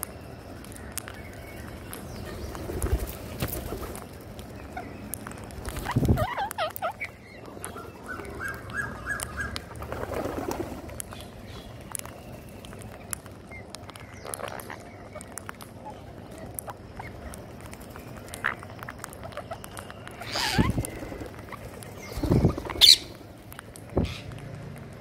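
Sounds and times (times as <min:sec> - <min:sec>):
birds pecking clicks: 0:00.0 - 0:25.0
parakeet calls: 0:04.6 - 0:10.3, 0:11.1 - 0:17.5, 0:18.2 - 0:23.3, 0:23.9 - 0:24.4.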